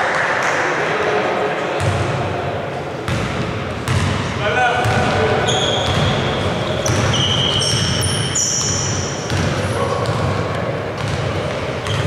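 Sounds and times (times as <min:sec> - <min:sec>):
sneakers squeaking: 0:03.0 - 0:12.0
basketball dribbling on wooden court: 0:03.1 - 0:04.2, 0:04.8 - 0:05.1, 0:05.8 - 0:06.2, 0:06.8 - 0:08.0, 0:08.6 - 0:10.4, 0:11.0 - 0:12.0.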